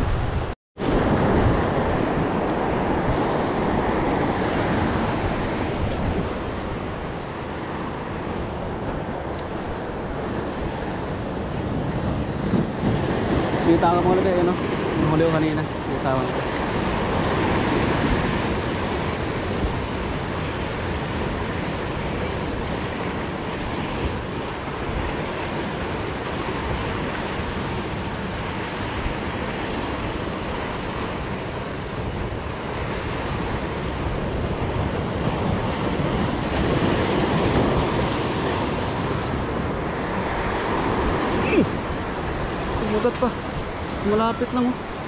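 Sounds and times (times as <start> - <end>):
surf breaking over rocks: 0.0 - 45.0
wind buffeting microphone: 0.0 - 45.0.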